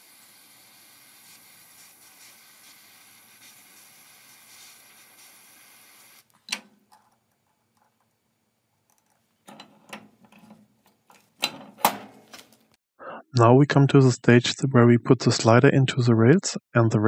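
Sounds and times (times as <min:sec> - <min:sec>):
butane torch hissing: 0:00.0 - 0:06.3
metallic clicks and knocks: 0:08.9 - 0:12.2.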